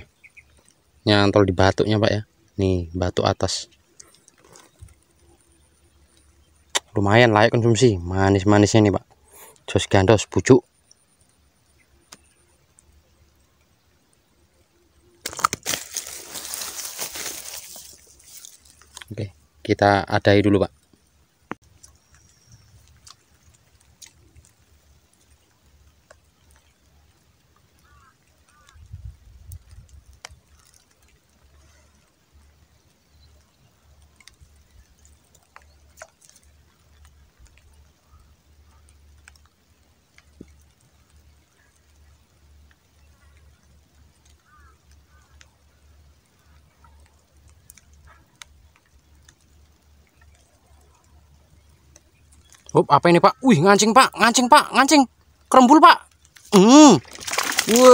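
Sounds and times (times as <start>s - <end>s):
light raindrops on water and grass: 0.0s - 57.9s
crinkly rustling: 15.2s - 19.2s, 56.1s - 57.9s.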